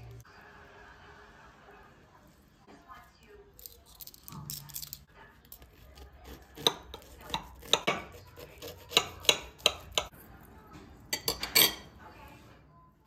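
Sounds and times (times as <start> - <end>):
cutlery clinking on a plate: 11.1 - 12.0.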